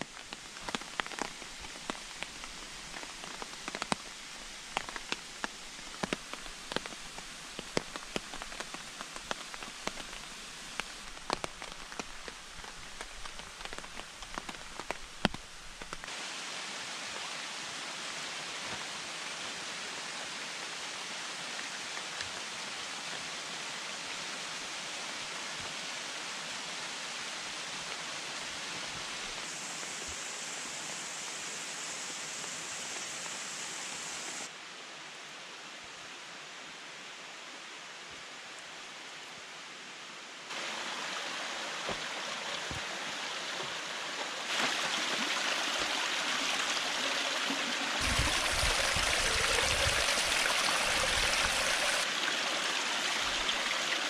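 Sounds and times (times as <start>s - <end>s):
raindrops hitting a tarp: 0.0s - 16.4s, 40.5s - 52.1s
rushing water: 0.0s - 54.0s
steady rain hiss: 0.0s - 54.0s.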